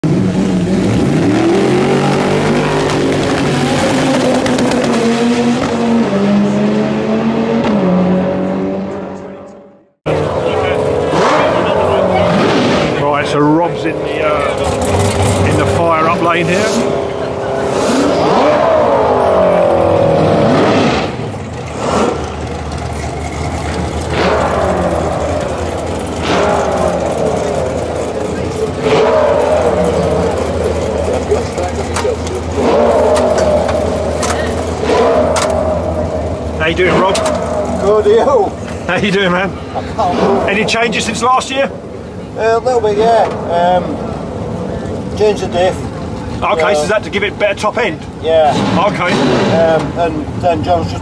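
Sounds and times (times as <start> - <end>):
engine crackles: 0.0 - 6.6, 8.9 - 51.0
racing car engine revving: 0.0 - 51.0.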